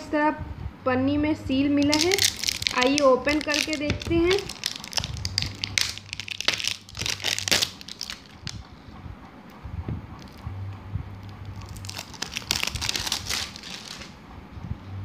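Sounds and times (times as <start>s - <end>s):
plastic wrap tearing and crinkling: 1.9s - 8.6s, 11.5s - 14.2s.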